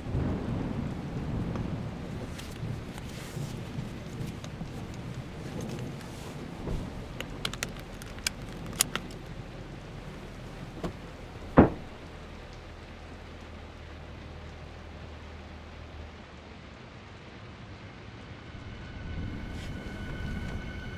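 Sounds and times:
low rumbling noise: 0.0 - 20.9
light clicks and taps: 2.3 - 9.5.

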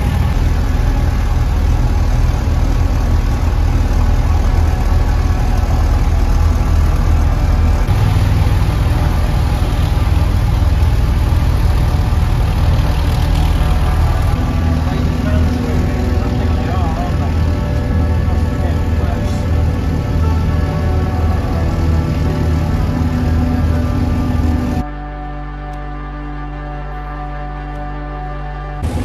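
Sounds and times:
boat engine droning in a tunnel: 0.0 - 29.0.

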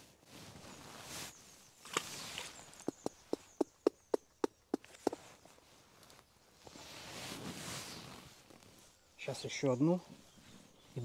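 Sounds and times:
grass rustling: 0.0 - 9.0.

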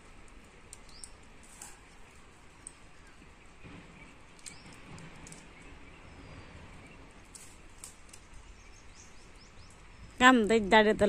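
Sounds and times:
light rustling: 0.0 - 5.9, 7.1 - 8.7
faint outdoor ambience: 0.0 - 11.0.

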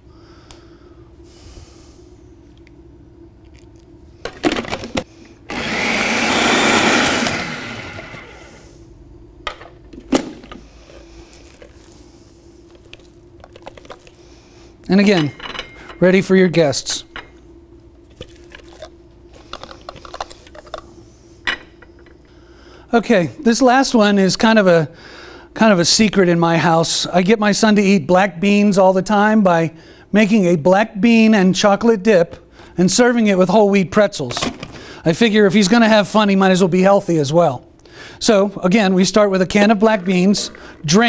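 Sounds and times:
food processor motor running: 5.5 - 8.6.

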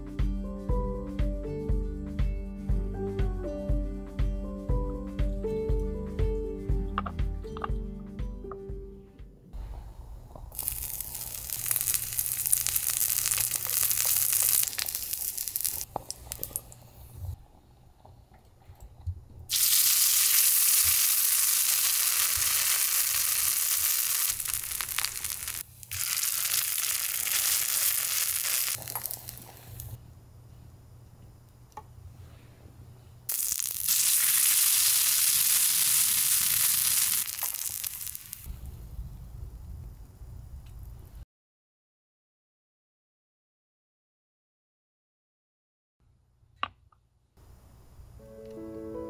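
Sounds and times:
oil sizzling in a pan: 10.5 - 16.6, 19.5 - 30.0, 33.3 - 38.5.

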